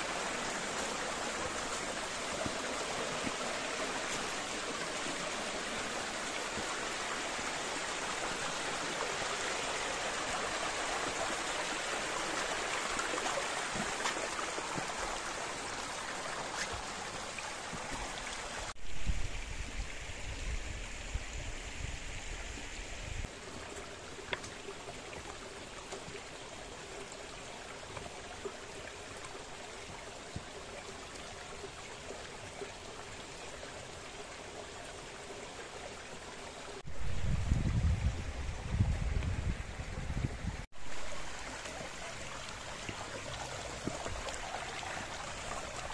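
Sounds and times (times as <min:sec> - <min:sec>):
stream rushing over rocks: 0:00.0 - 0:45.9.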